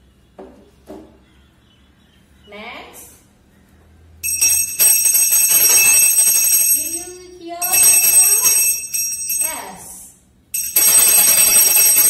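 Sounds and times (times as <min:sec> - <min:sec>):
hand bell ringing: 0:04.2 - 0:09.9, 0:10.5 - 0:12.0.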